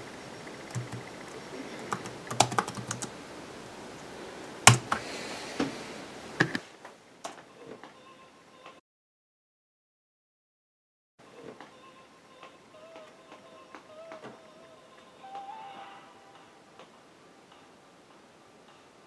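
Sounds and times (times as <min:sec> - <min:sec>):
laptop keyboard typing: 0:00.5 - 0:03.2, 0:04.6 - 0:05.1.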